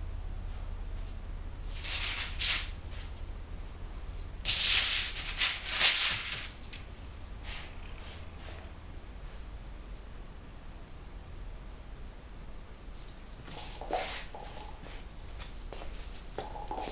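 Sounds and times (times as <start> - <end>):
low steady hum: 0.0 - 16.9
newspaper rustling and crinkling: 4.7 - 6.8.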